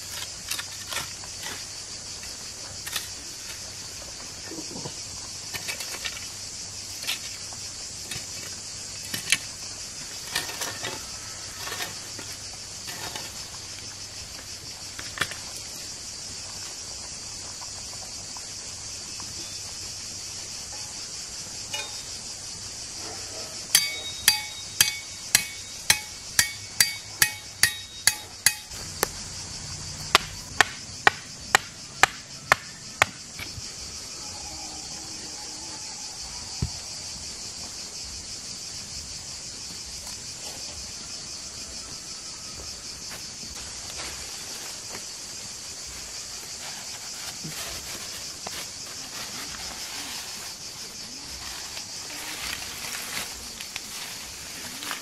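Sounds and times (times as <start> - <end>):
insects droning: 0.0 - 55.0
sharp metallic strikes: 23.7 - 28.8.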